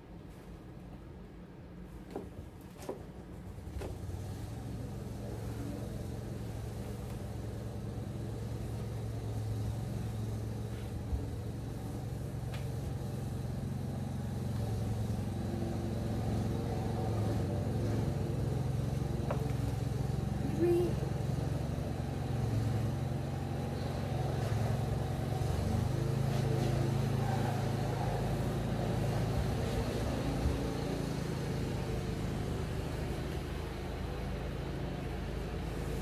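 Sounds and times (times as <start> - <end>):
low engine-like rumble: 0.0 - 36.0.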